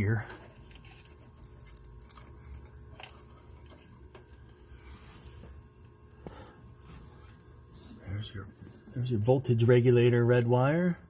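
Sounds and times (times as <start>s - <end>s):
wiring harness rustling and clicking: 0.0s - 5.6s.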